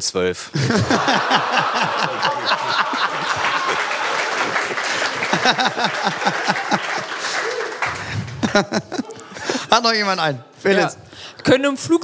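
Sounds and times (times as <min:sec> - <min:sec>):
audience laughing: 0:00.6 - 0:09.7
audience clapping: 0:00.8 - 0:10.0.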